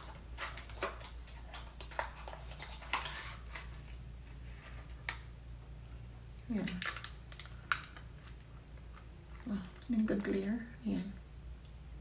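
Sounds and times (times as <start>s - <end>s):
plastic wrapping crinkling: 0.0s - 5.3s, 6.5s - 10.5s.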